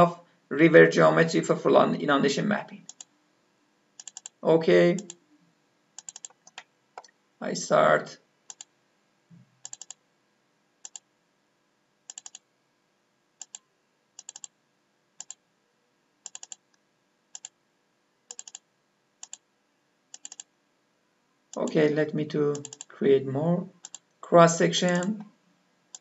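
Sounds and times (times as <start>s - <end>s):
faint computer mouse clicks: 2.9s - 3.1s, 4.0s - 4.4s, 6.0s - 7.2s, 8.5s - 8.7s, 9.6s - 10.0s, 10.8s - 11.0s, 12.1s - 12.4s, 13.4s - 13.6s, 14.2s - 14.5s, 15.2s - 15.4s, 18.3s - 18.6s, 19.2s - 19.4s, 20.1s - 20.5s, 22.6s - 22.9s, 23.8s - 24.1s.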